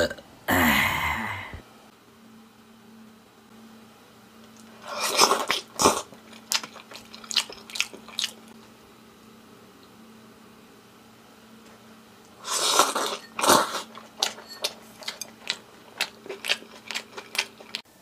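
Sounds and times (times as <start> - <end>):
person burping: 0.0 - 1.6.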